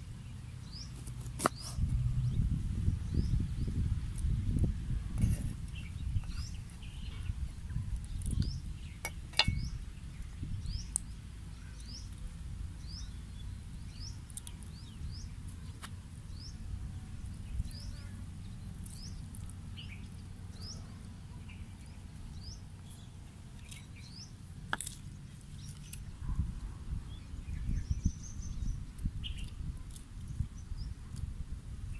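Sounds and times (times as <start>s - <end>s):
steady low rumble: 1.8s - 31.9s
bird chirping: 5.3s - 12.2s, 12.8s - 26.4s.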